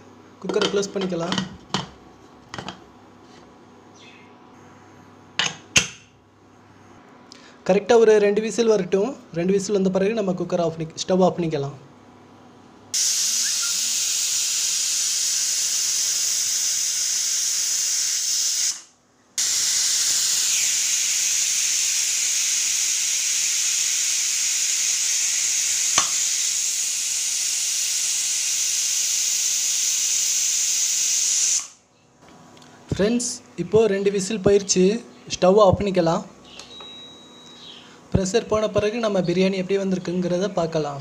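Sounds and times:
pressure cooker whistling: 13.0s - 31.8s, 36.6s - 37.8s.

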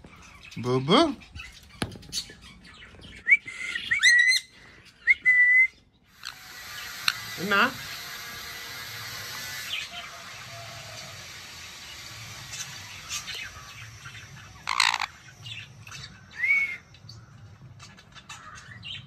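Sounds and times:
parrot rising-and-falling chirp: 3.6s - 4.5s, 12.9s - 15.3s.

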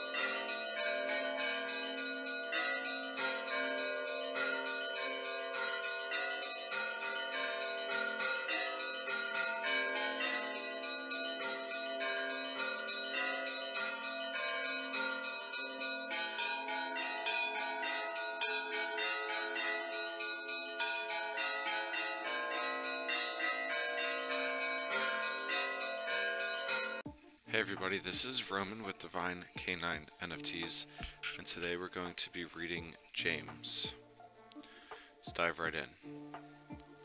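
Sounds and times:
church bells pealing: 0.0s - 27.1s.

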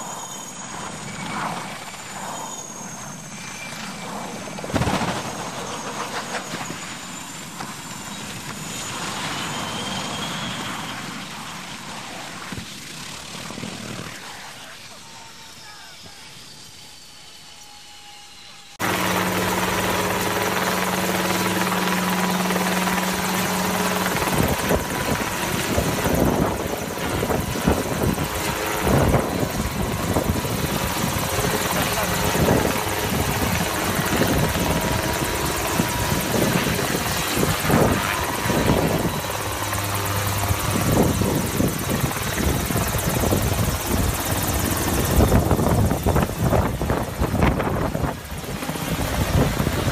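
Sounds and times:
helicopter hovering: 0.0s - 49.9s.

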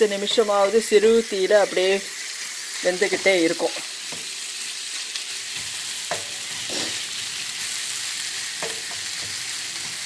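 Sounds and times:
vegetables sizzling in frying pan: 0.0s - 10.0s
wooden spatula scraping pan: 6.1s - 7.1s.

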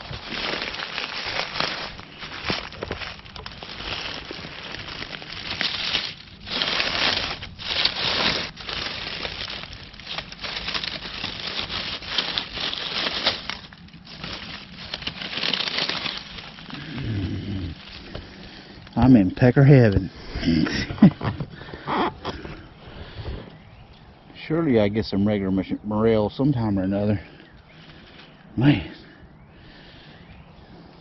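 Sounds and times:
footsteps crunching dry leaves: 0.0s - 24.2s.

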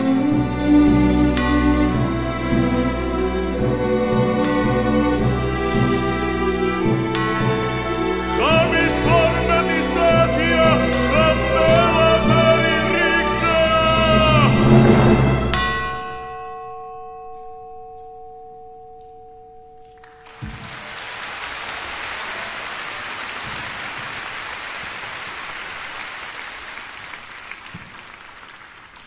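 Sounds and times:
orchestra sustained tones: 0.0s - 16.6s
audience applause: 8.4s - 14.8s, 20.0s - 29.0s.

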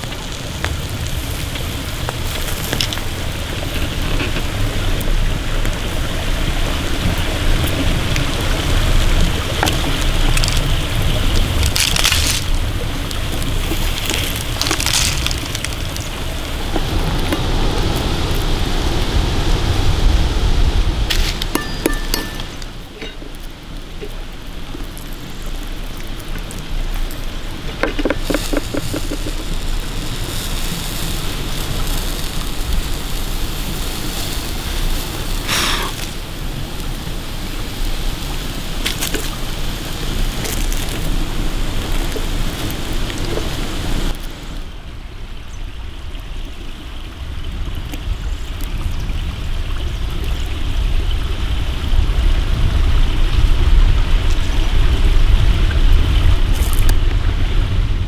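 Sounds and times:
salt crust cracking: 0.0s - 4.4s, 9.5s - 18.4s, 21.1s - 37.0s, 38.8s - 44.2s, 56.5s - 57.0s
campfire crackling: 0.0s - 45.3s, 46.0s - 58.0s
roast chicken tearing: 11.5s - 12.6s, 13.3s - 16.2s.

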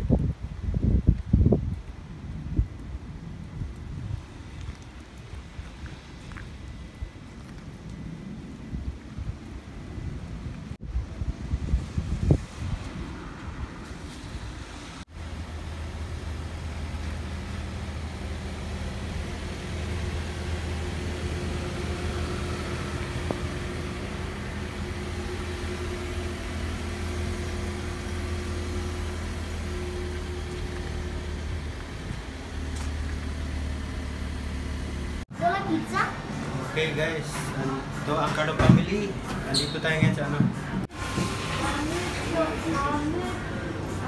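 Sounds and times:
outdoor hiss: 40.8s - 43.9s.

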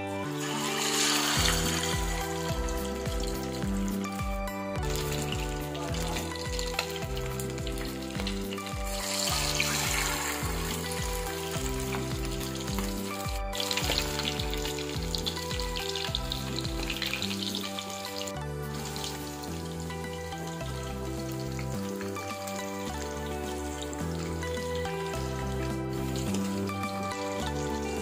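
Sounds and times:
background music: 0.0s - 28.0s
quails sizzling in hot oil: 0.2s - 4.2s, 4.8s - 28.0s.

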